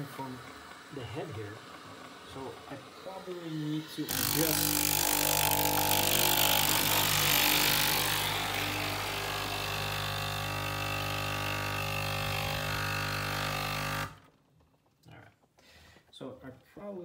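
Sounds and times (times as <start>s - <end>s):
steam hissing: 0.0s - 4.6s
espresso machine pump buzzing: 0.0s - 14.3s.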